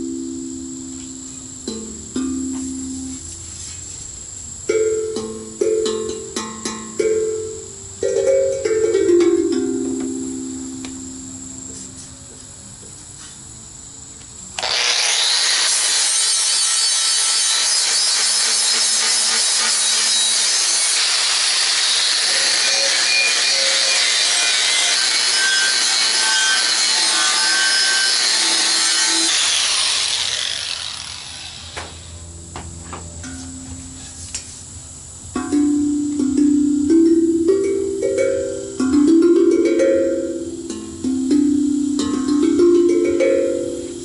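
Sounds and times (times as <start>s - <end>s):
angle grinder cutting steel: 14.6s - 32.2s.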